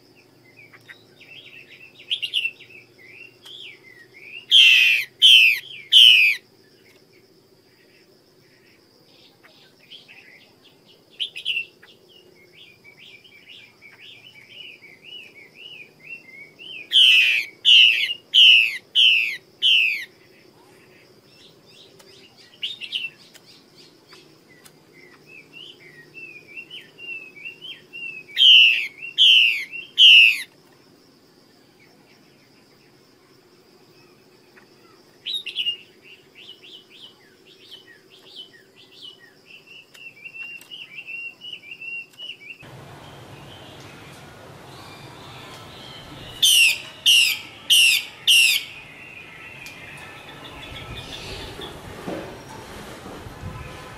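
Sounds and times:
bird calling harsh falling notes: 42.6 - 51.9.

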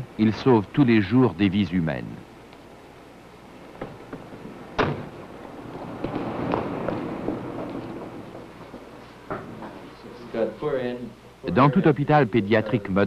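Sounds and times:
faint knocks: 3.7 - 9.8
car door slamming: 4.8 - 5.2.

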